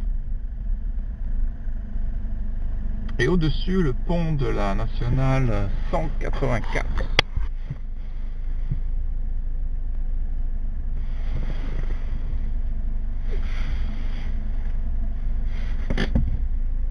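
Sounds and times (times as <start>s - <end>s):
car engine idling: 0.0s - 16.9s.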